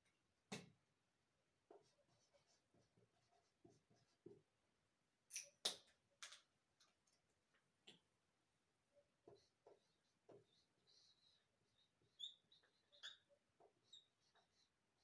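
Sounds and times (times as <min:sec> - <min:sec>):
marker squeaking on whiteboard: 0:01.7 - 0:04.4, 0:09.0 - 0:15.0.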